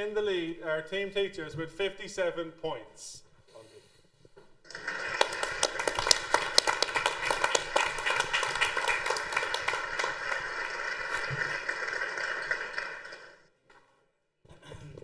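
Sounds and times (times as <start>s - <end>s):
small group clapping: 4.7s - 13.5s.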